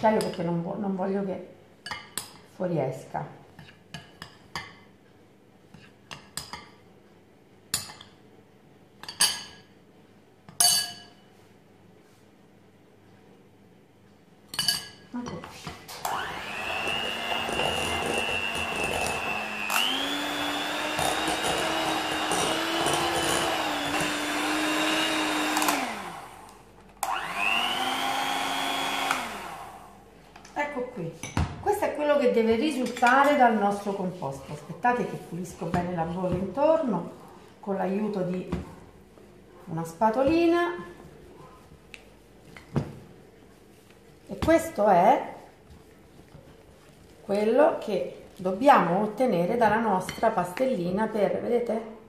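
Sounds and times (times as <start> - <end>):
metal spoon clinking on glass: 10.5 - 11.2, 14.5 - 15.0
electric hand mixer whining: 16.0 - 30.0.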